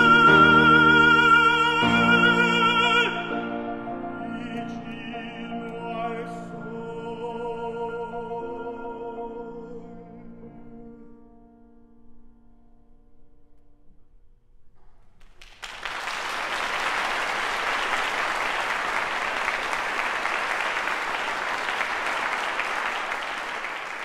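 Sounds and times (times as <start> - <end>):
audience applause: 15.2 - 24.0.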